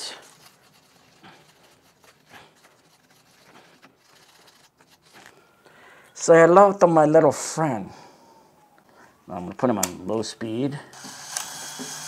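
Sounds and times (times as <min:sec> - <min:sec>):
wire brush scratching metal: 0:00.0 - 0:05.3.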